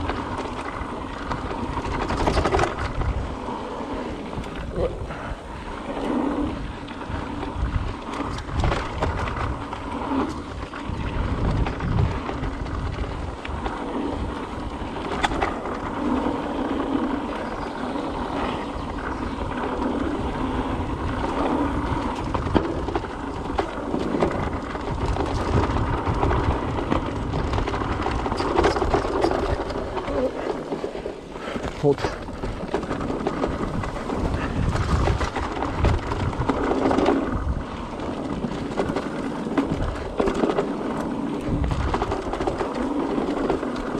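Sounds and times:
bike rattling over ground: 0.0 - 43.9
bike tyres rolling on dirt: 0.0 - 43.9
wind rumbling on microphone: 0.0 - 43.9.

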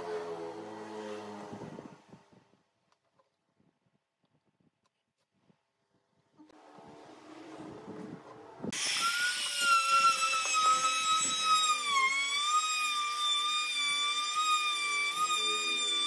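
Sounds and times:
router motor whining: 8.7 - 16.0.

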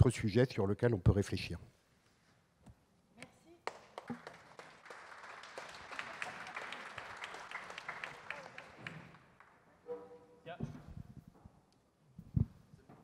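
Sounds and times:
audience applauding: 3.6 - 9.6.

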